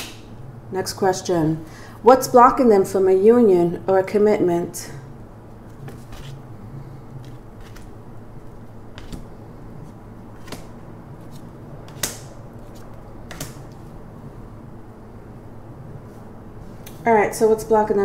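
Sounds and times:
cards dealt onto wooden table: 7.2 - 7.9.

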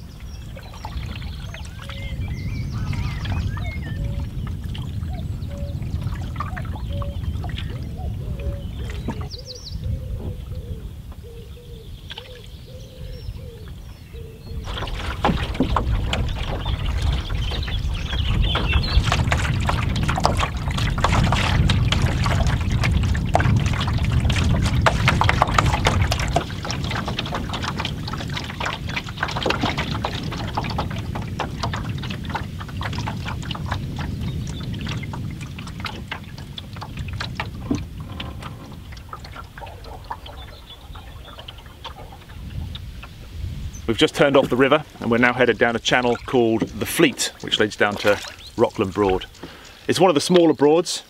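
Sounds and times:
water splashes and drips: 0.0 - 9.6, 12.0 - 12.7, 14.6 - 51.0
paddle strokes through water: 0.0 - 51.0
low rumble: 14.1 - 49.4.

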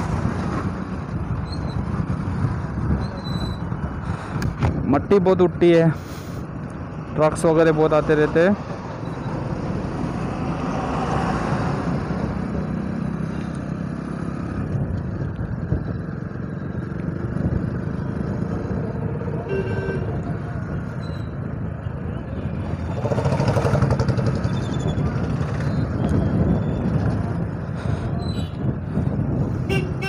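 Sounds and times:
traffic: 0.0 - 30.0
wind and road noise: 0.0 - 30.0
motorcycle engine running: 22.6 - 26.3.

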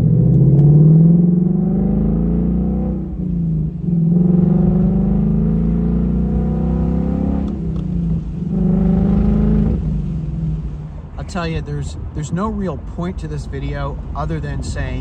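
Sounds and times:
car engine exhaust accelerating: 0.0 - 11.2.

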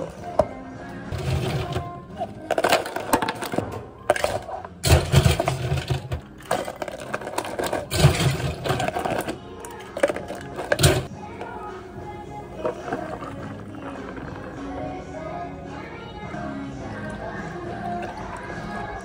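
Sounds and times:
ice cubes clattering into plastic cups: 1.1 - 11.1, 12.5 - 14.7.

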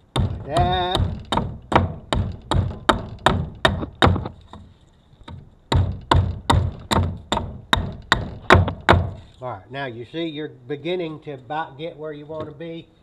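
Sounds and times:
hatchet chopping wood: 0.0 - 9.3.

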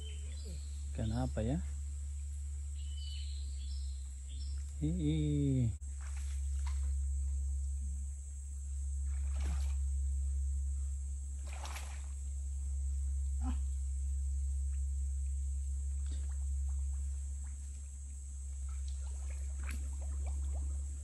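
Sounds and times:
high-pitched whine: 0.0 - 21.0
low rumble: 0.0 - 21.0
water sloshing and splashing: 5.9 - 7.0, 9.1 - 9.8, 11.4 - 12.2, 15.9 - 21.0.

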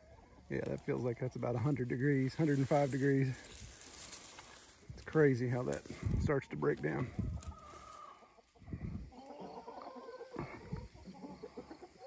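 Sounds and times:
hens clucking: 0.0 - 12.0
short wavering hen calls: 7.1 - 12.0.

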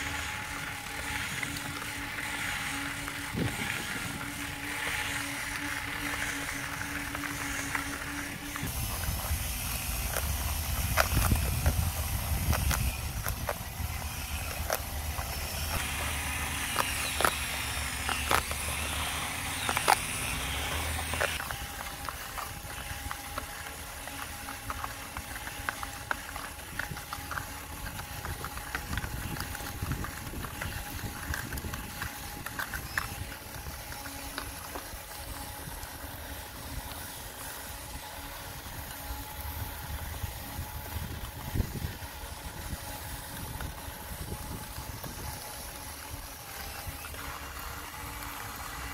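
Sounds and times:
wheel scraping into sand: 0.0 - 23.1
small electric motors whirring: 0.0 - 48.9.

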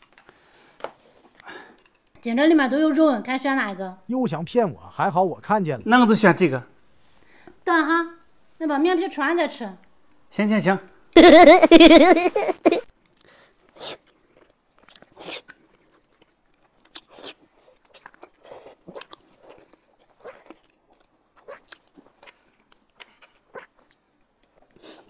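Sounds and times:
chewing and lip smacks: 13.0 - 25.0.

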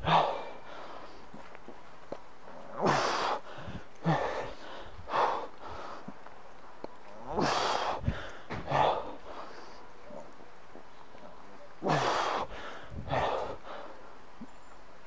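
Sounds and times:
man breathing hard: 0.0 - 1.5, 2.5 - 6.2, 7.3 - 9.9, 11.8 - 14.2.

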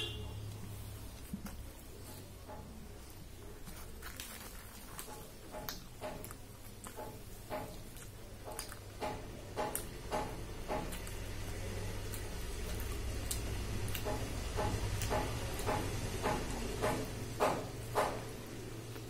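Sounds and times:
low steady hum: 0.0 - 19.0
wet chewing and mouth smacking: 0.5 - 17.0.

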